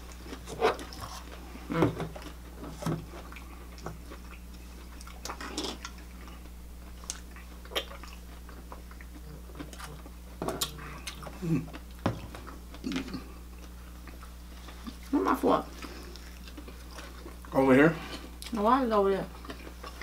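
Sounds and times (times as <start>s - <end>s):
steady low hum: 0.0s - 20.0s
wet mouth smacks chewing food: 3.1s - 15.1s.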